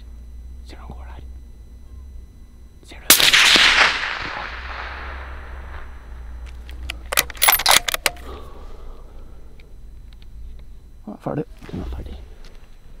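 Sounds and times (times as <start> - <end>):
gunshot echoing: 3.1 - 6.4.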